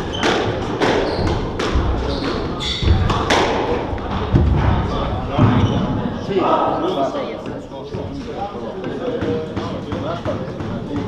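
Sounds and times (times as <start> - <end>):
shoes squeaking on wooden floor: 0.0 - 3.3
squash ball hitting rackets: 0.0 - 4.8.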